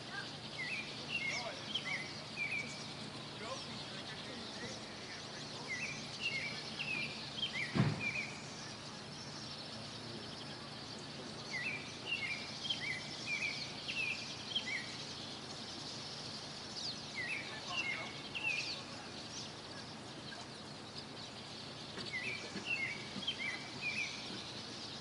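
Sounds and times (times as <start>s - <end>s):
low outdoor hum: 0.0s - 25.0s
songbirds chirping: 0.0s - 25.0s
dull thump: 7.7s - 8.2s.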